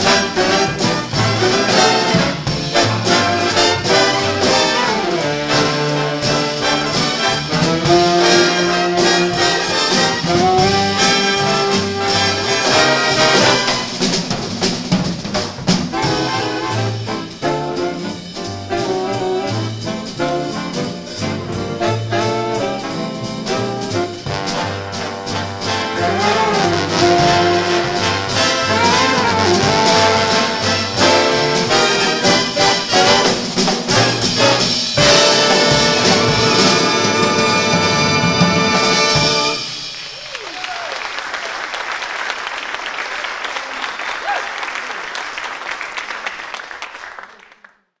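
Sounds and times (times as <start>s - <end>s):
big band playing jazz: 0.0s - 44.1s
audience applauding: 39.6s - 48.0s.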